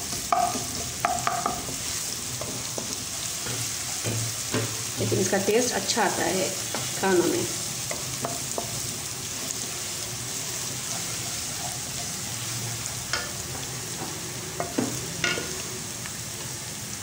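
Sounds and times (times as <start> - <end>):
onions sizzling in oil: 0.0 - 17.0
spatula knocking against pan: 0.2 - 1.8, 7.9 - 8.8.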